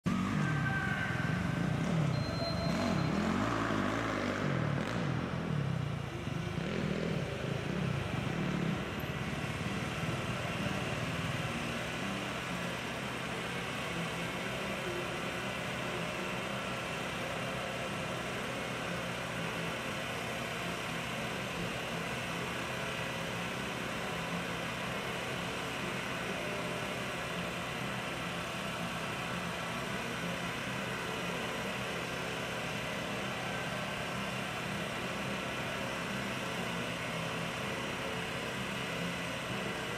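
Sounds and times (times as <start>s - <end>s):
dirt bike engine revving: 1.4s - 12.2s.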